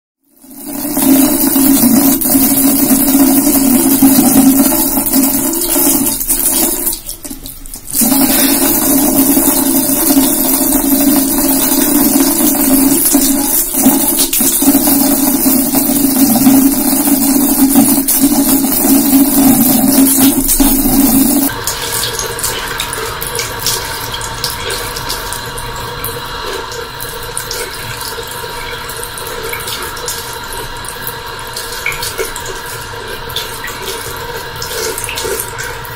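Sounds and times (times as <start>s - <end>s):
water trickling into basin: 0.2s - 35.9s
tap water splashing into basin: 26.0s - 35.8s.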